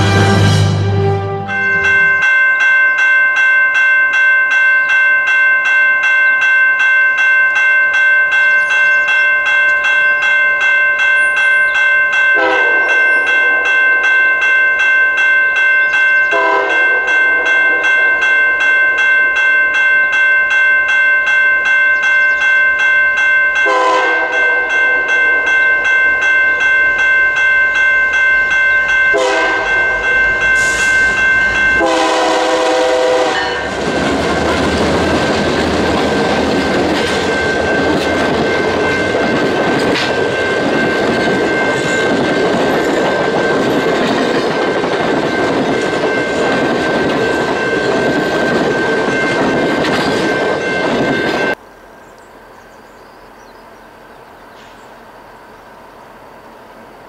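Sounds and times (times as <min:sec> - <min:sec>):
diesel locomotive horn blasts: 0:00.0 - 0:02.1, 0:12.4 - 0:13.6, 0:16.3 - 0:17.1, 0:23.6 - 0:24.8, 0:29.1 - 0:33.9
level crossing warning bell ringing: 0:01.4 - 0:51.6.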